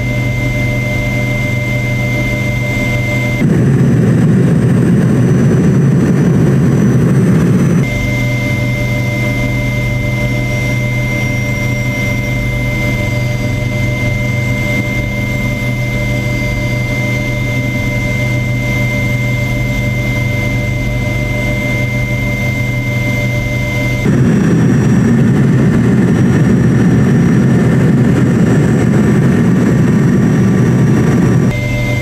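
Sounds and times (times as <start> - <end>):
helicopter cabin whine and drone: 0.0 - 32.0.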